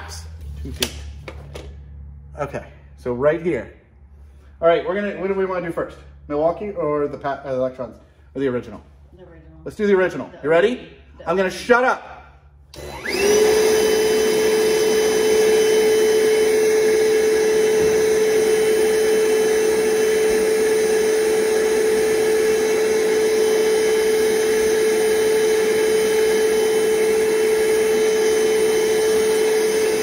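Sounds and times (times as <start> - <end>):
shop vacuum motor whine: 12.7 - 30.0.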